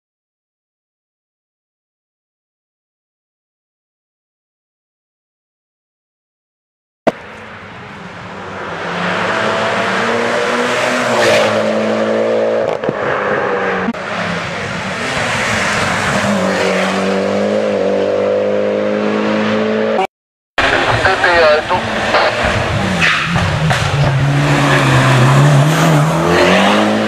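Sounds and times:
race car engine revving: 8.4s - 27.0s.

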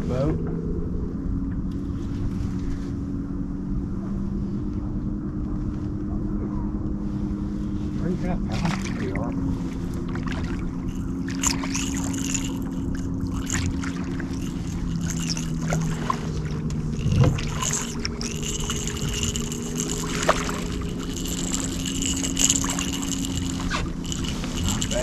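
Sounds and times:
boat motor humming: 0.0s - 25.0s
faint high whine: 0.0s - 25.0s.

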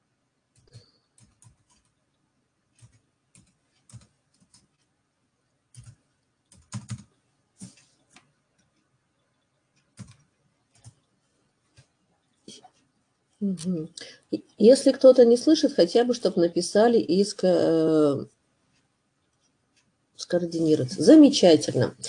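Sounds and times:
computer keyboard typing: 0.5s - 4.9s, 5.7s - 8.8s, 9.4s - 11.1s.

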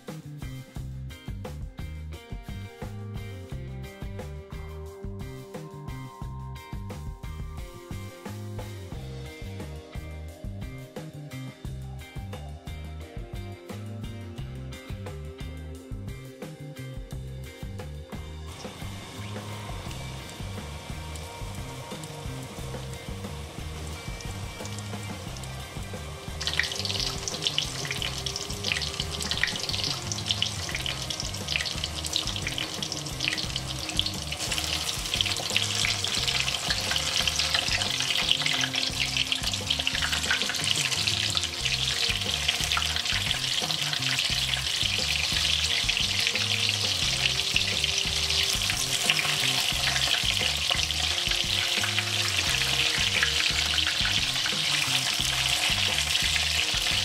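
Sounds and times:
oil sizzling while deep-frying: 7.0s - 9.8s, 17.5s - 57.0s.

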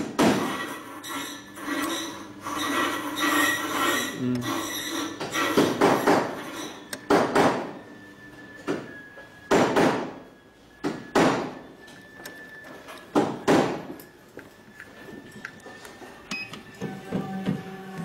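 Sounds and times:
faint steady whine: 6.2s - 18.0s.

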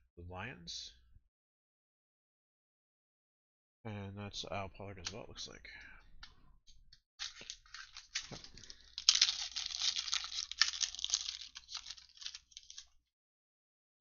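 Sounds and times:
foil wrapper tearing and crinkling: 7.2s - 13.0s.

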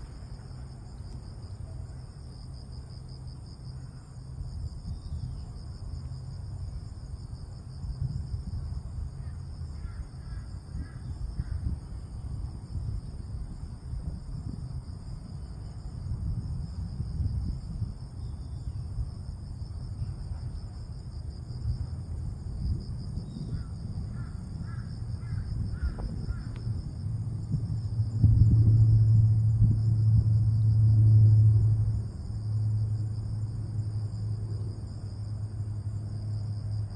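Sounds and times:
insect trill: 0.0s - 36.9s
wind on microphone: 4.4s - 34.9s
crow calling: 23.5s - 26.6s.

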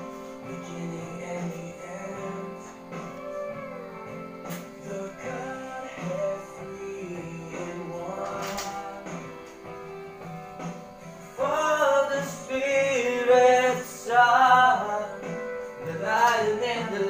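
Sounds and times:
person singing: 0.0s - 10.2s, 11.3s - 17.0s
guitar-backed song: 0.0s - 17.0s.

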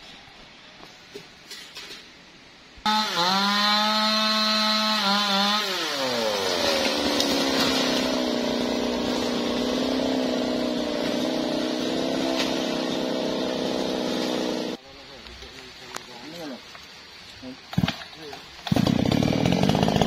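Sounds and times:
chainsaw running: 2.9s - 14.8s, 18.6s - 20.0s.

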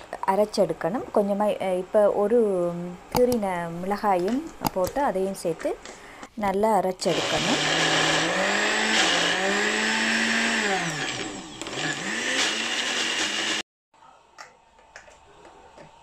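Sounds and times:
mixer grinder motor grinding: 7.1s - 13.6s.

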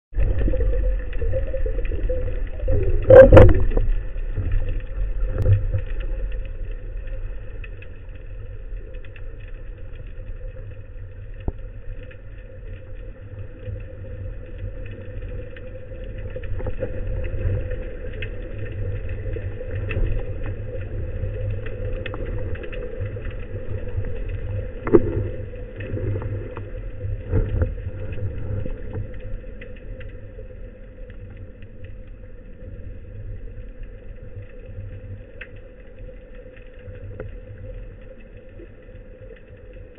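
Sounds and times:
underwater low rumble and hum: 0.1s - 39.9s
faint clicks: 0.3s - 39.9s.

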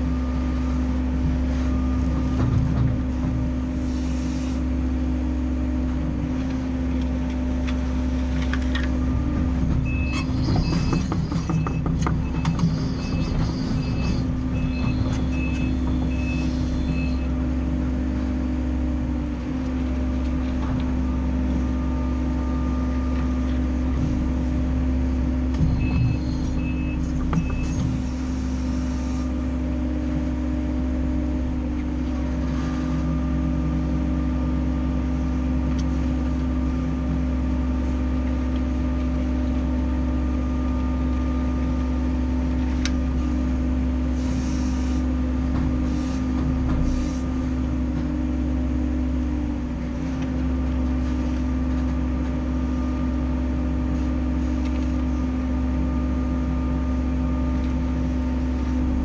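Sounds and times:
excavator diesel engine rumble: 0.0s - 59.0s
hydraulic whine: 8.1s - 17.8s, 20.5s - 35.6s, 39.8s - 59.0s
short electronic beeps: 9.8s - 17.3s, 25.8s - 28.0s.

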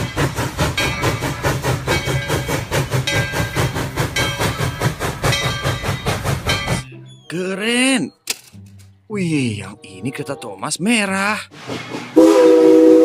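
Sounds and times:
steam train clatter on track: 0.0s - 6.9s, 11.5s - 13.0s
low train rumble: 0.0s - 8.0s, 8.9s - 13.0s.

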